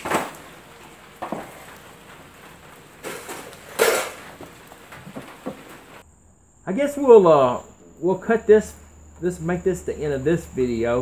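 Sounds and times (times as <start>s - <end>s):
wooden pieces knocking on concrete: 3.0s - 5.9s.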